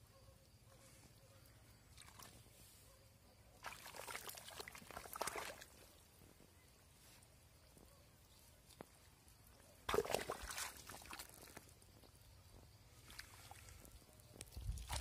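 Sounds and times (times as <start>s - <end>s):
wet crackling and rustling: 9.8s - 12.2s.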